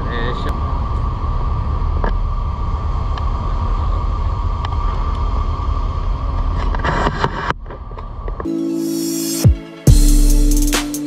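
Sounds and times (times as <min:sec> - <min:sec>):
machinery hum with high whine: 0:00.0 - 0:08.5.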